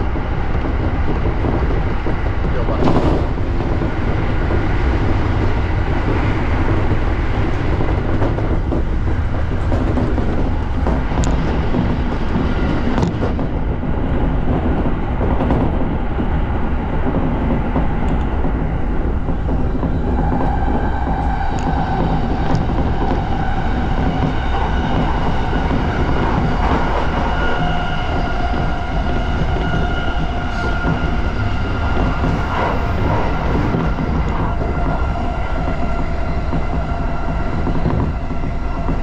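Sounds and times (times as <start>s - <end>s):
train rumble: 0.0s - 39.0s
wheels clicking over rails: 0.0s - 39.0s
steady whine: 17.9s - 39.0s.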